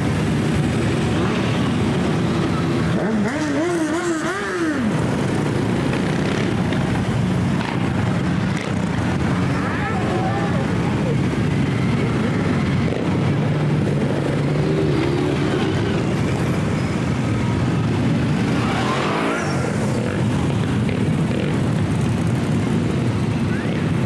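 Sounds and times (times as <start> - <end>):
motorcycle engines passing: 0.0 - 24.0
motorcycle engine revving: 0.3 - 9.4, 18.0 - 23.1.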